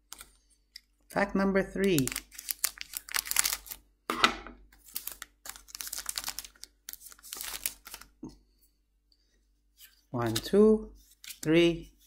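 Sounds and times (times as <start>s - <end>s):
foil wrapper crinkling: 1.8s - 3.8s, 4.8s - 8.2s.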